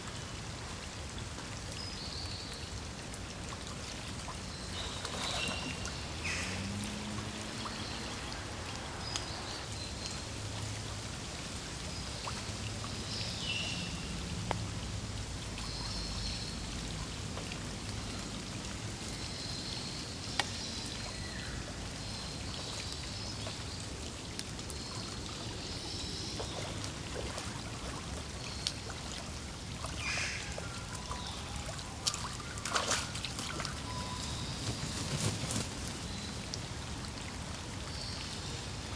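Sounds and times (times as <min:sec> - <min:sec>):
heavy rain on pond and leaves: 0:00.0 - 0:38.9
sharp raindrop clicks: 0:04.8 - 0:09.6, 0:14.3 - 0:15.7, 0:20.2 - 0:25.7.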